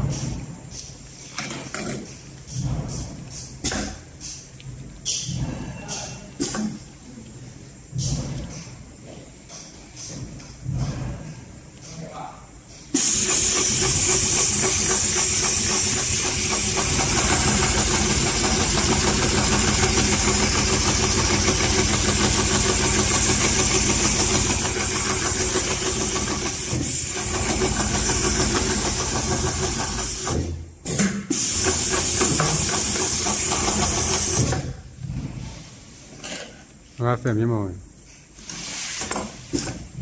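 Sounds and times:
industrial sewing machine stitching: 13.0s - 30.4s, 31.3s - 34.6s.

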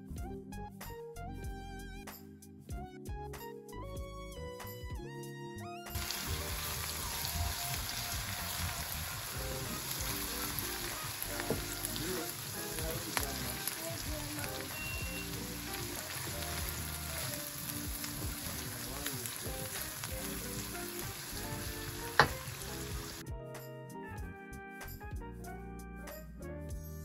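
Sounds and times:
music: 0.0s - 27.0s
onion sizzling in butter: 6.0s - 23.2s
wooden spoon knocking on pan: 9.4s - 12.0s, 21.0s - 23.1s.

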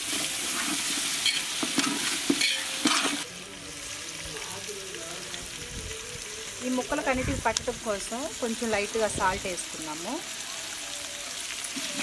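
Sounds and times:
vegetables sizzling in oil: 0.0s - 12.0s
metal spatula scraping pot: 0.1s - 3.2s.

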